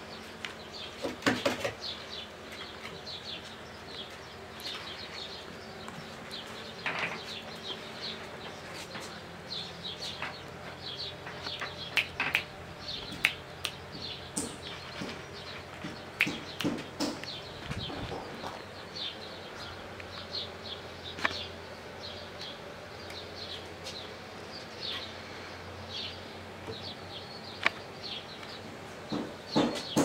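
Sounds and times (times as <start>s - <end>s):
small birds chirping: 0.0s - 30.0s
puppy paws knocking on stairs: 15.8s - 18.4s.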